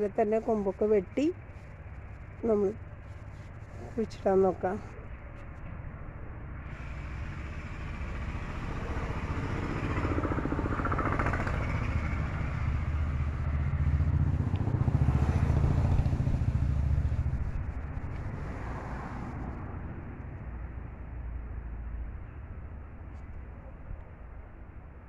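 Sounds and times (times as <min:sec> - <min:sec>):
vehicle engine passing by: 0:02.4 - 0:21.5.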